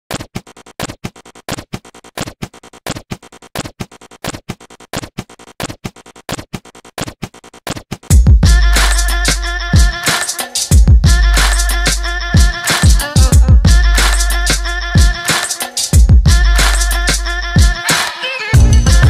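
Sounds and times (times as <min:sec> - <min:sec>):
rapid repeating sharp clicks: 0:00.1 - 0:08.2
loud music with heavy bass: 0:08.1 - 0:19.0.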